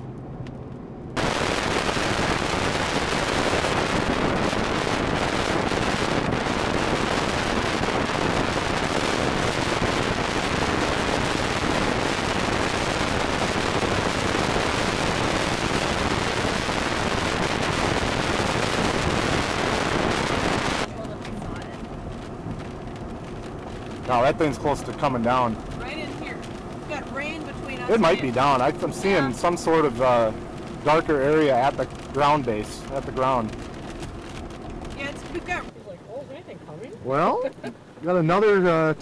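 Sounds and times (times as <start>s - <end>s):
wind rushing across microphone: 1.2s - 24.4s.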